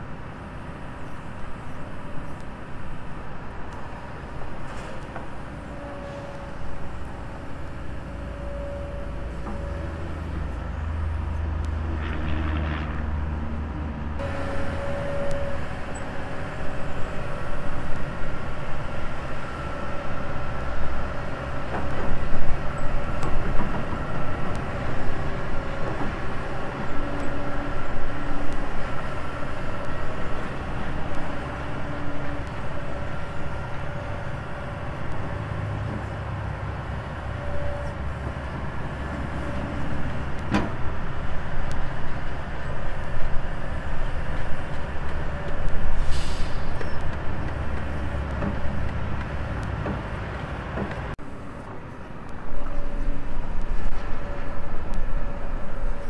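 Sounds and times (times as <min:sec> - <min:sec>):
short hiss: 0:46.0 - 0:46.8.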